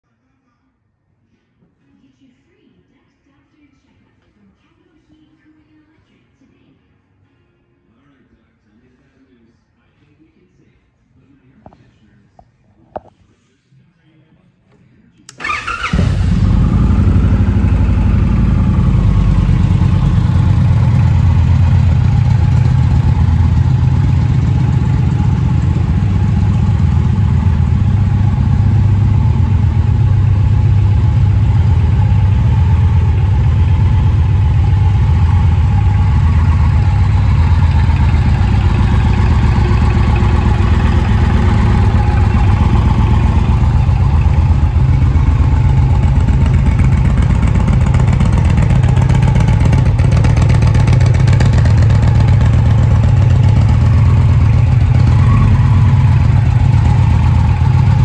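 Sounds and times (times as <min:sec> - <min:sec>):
motorcycle engine starting and idling: 0:15.3 - 0:58.0.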